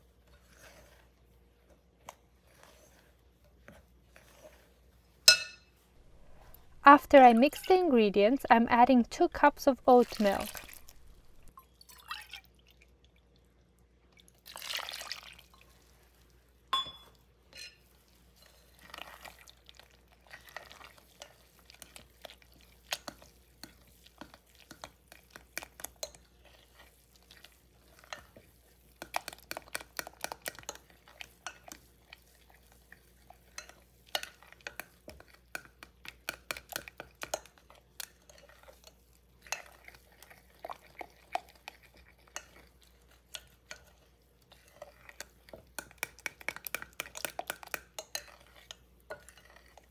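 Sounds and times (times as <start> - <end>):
spoon stirring thick batter: 0.0 - 11.6, 14.4 - 49.9
spoon clinking against glass: 5.3 - 5.7, 16.8 - 17.8
milk pouring: 9.9 - 16.4.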